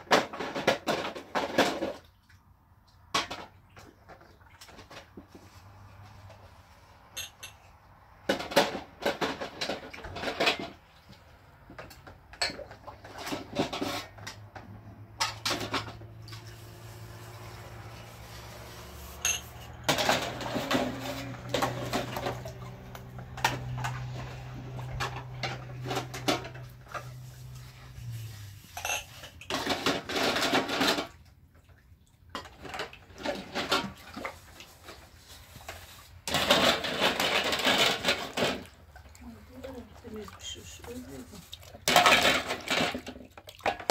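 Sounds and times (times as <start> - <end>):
pots and dishes clattering: 0.0 - 2.0, 3.2 - 5.1, 7.2 - 7.6, 8.3 - 10.8, 11.9 - 14.5, 15.2 - 16.2, 19.2 - 28.0, 28.7 - 31.2, 32.4 - 34.2, 35.7 - 38.8, 41.8 - 43.9.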